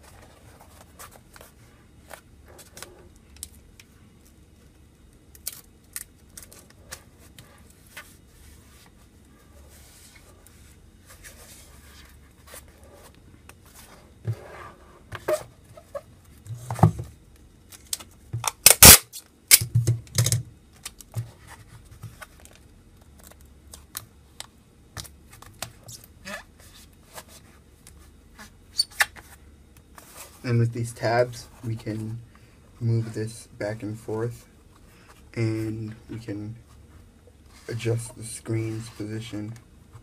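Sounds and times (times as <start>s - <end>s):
packing tape ripping: 17.8s - 19.6s.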